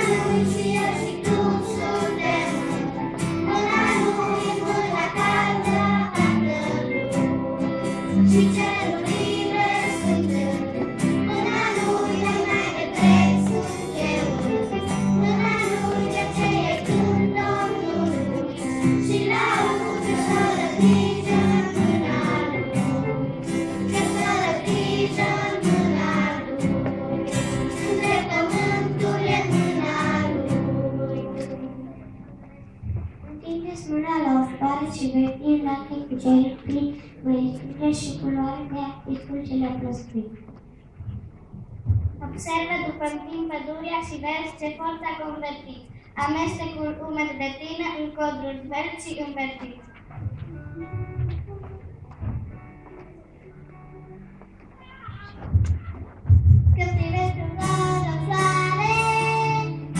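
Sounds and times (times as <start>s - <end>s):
children's choir singing: 0.0s - 32.2s, 57.2s - 59.9s
strummed acoustic guitar: 0.0s - 32.2s, 56.3s - 59.9s.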